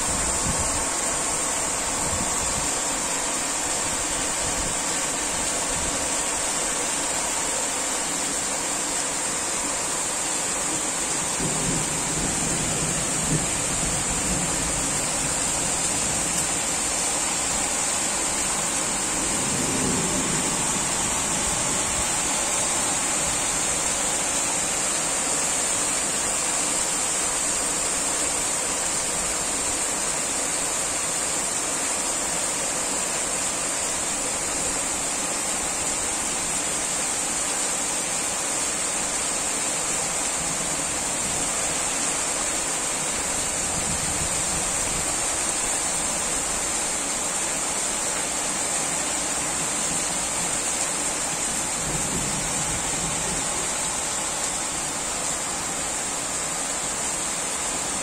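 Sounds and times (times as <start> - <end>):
steady rain hiss: 0.0 - 58.0
low rolls of thunder: 11.4 - 16.2, 19.2 - 22.1.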